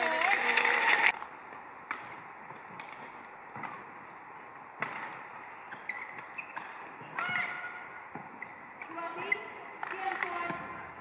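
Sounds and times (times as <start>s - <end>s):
rackets hitting shuttlecock: 4.8s - 10.8s
shoes squeaking on court: 4.8s - 10.8s.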